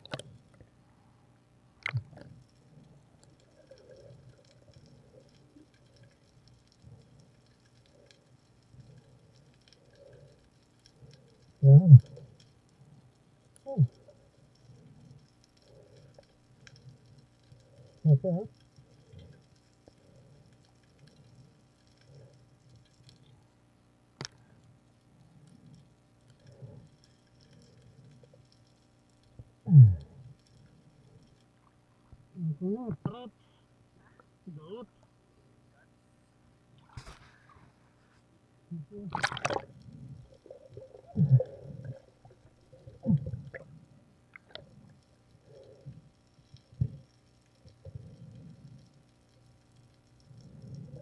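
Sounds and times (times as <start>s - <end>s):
faint clicks and knocks: 0.0s - 0.8s, 1.8s - 32.3s, 39.2s - 51.0s
faint underwater hum: 0.0s - 51.0s
scattered ticks: 1.8s - 23.6s, 24.2s - 31.8s, 39.5s - 51.0s
muffled underwater sound: 17.8s - 18.6s, 38.7s - 43.7s.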